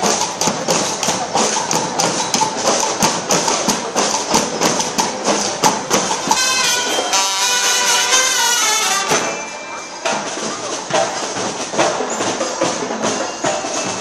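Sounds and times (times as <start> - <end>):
marching drums and cymbals: 0.0 - 14.0
brass holding notes: 6.3 - 9.4.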